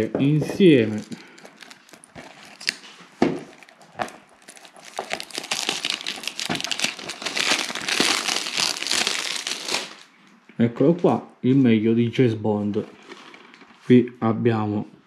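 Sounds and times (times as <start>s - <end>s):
cellophane crinkling: 0.0s - 10.1s, 12.9s - 13.8s.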